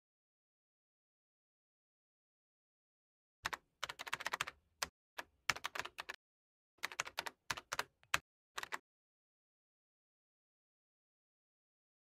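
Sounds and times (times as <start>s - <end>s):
laptop keyboard typing: 3.5s - 4.6s, 5.2s - 6.2s, 6.8s - 8.8s.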